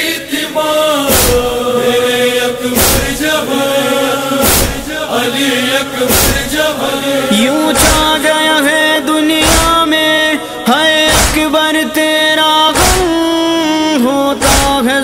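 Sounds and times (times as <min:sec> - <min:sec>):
chorus chanting: 0:00.0 - 0:15.0
heavy drum beat: 0:01.1 - 0:01.6, 0:02.8 - 0:03.3, 0:04.4 - 0:04.9, 0:06.1 - 0:06.6, 0:07.8 - 0:08.2, 0:09.4 - 0:09.8, 0:11.1 - 0:11.5.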